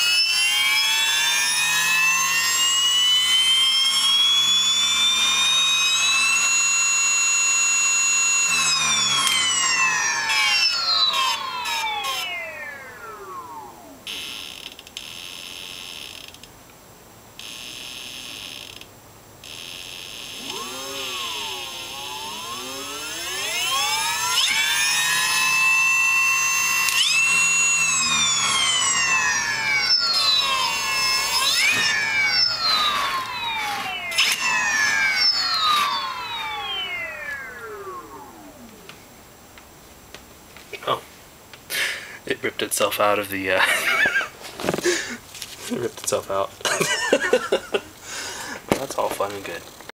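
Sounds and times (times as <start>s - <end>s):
electric motor whining: 0.0s - 16.1s, 19.4s - 39.1s.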